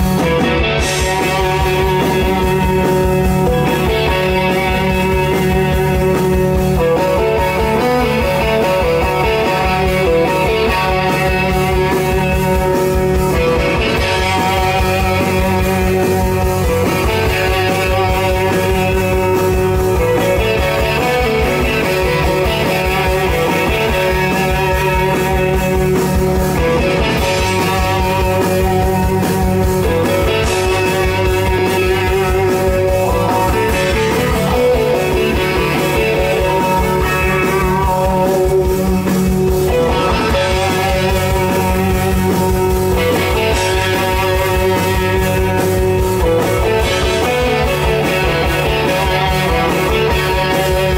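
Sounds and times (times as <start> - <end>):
distorted electric guitars: 0.0 - 50.9
live psychedelic rock band: 0.0 - 50.9.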